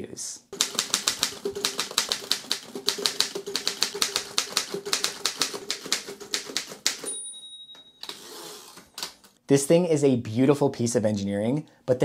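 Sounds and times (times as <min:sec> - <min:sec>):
manual typewriter typing: 0:00.5 - 0:07.1.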